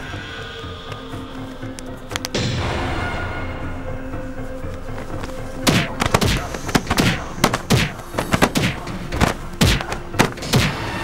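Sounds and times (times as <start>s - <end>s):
heavy thuds and whacks: 5.6s - 10.9s.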